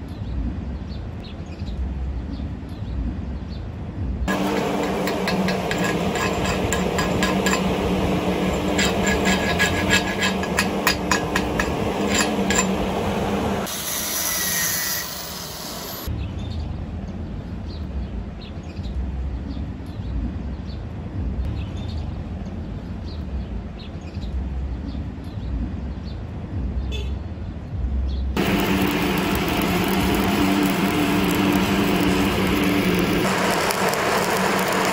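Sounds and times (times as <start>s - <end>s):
chipping hammer striking metal: 4.3s - 13.0s
machine drone: 4.3s - 16.1s, 28.4s - 34.9s
low rumble: 27.7s - 34.9s.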